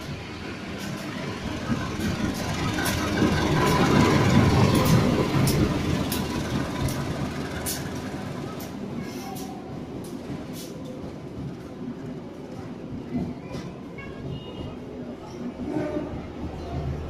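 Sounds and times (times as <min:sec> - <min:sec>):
locomotive engine rumble: 0:00.0 - 0:12.5
train wheels clicking on rail joints: 0:00.0 - 0:17.0.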